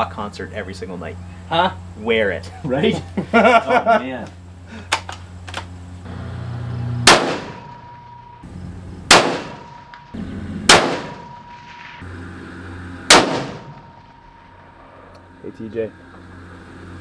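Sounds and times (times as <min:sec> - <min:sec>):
thin high tone: 0:06.1 - 0:17.0
rifle shots with echo: 0:07.0 - 0:08.0, 0:09.1 - 0:11.8, 0:13.1 - 0:14.1.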